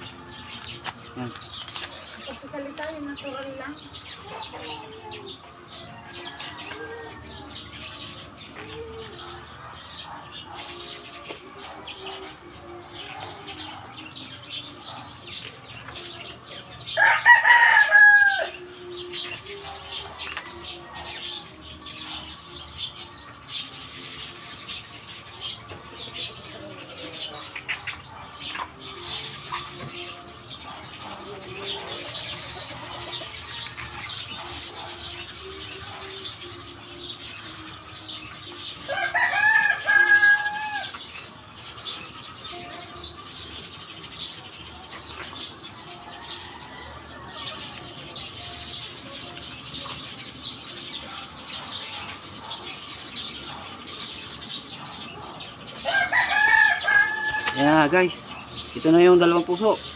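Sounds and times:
rooster crowing: 0:17.0 - 0:18.6, 0:38.9 - 0:41.0, 0:55.8 - 0:57.6.

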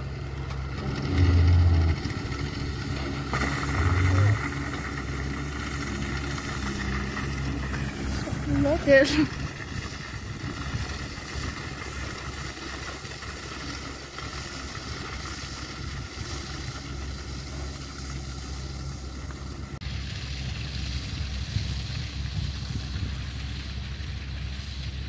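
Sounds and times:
tractor engine running: 0:00.0 - 0:25.0
wind on microphone: 0:07.6 - 0:12.4, 0:20.3 - 0:25.0.

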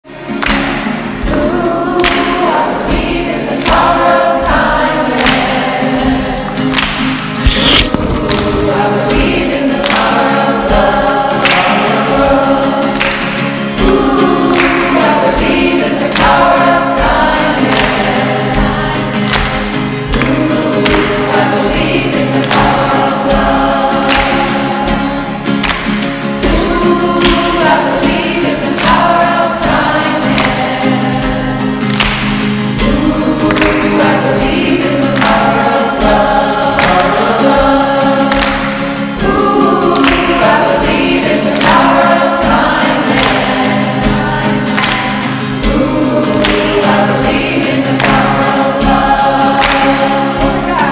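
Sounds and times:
song with group vocals and beat: 0:00.1 - 0:50.9.

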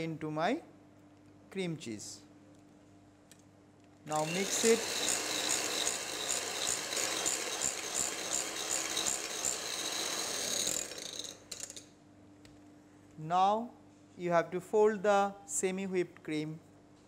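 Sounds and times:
electric hand mixer whipping: 0:04.1 - 0:11.2.

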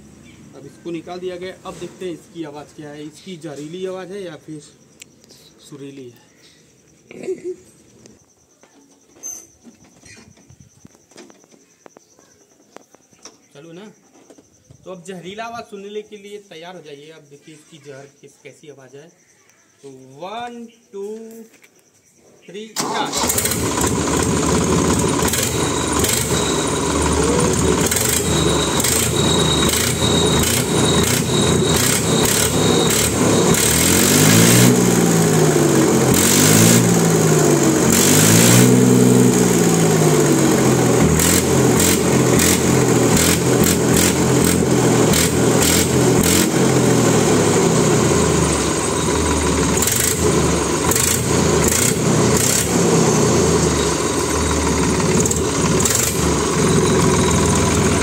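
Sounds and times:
tractor diesel engine revving: 0:22.8 - 0:58.0.

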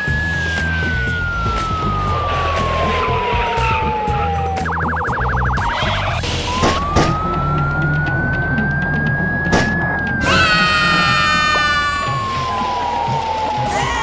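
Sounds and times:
police siren wailing: 0:00.0 - 0:14.0.

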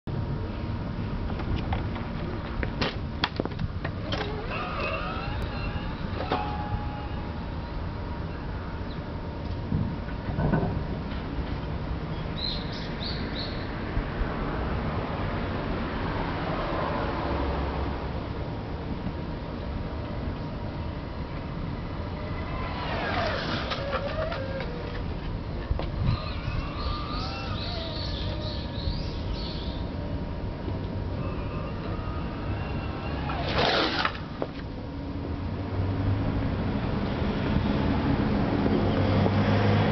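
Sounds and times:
constant low rumble: 0:00.0 - 0:15.9, 0:17.7 - 0:39.9
electric scooter motor whine: 0:03.8 - 0:09.3, 0:21.6 - 0:34.9
birds chirping: 0:26.0 - 0:30.0.

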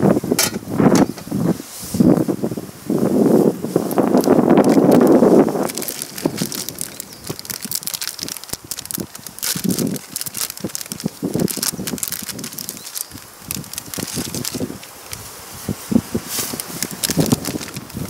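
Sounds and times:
wind gust on microphone: 0:00.0 - 0:18.0
packet crinkling as torn open: 0:03.8 - 0:15.3, 0:16.3 - 0:18.0.

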